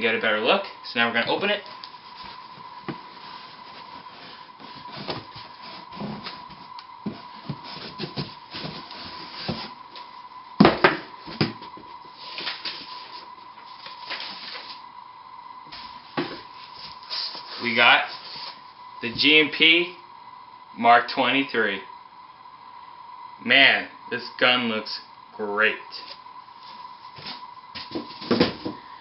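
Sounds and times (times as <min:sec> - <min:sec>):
cardboard lid scraping: 0:02.2 - 0:09.8.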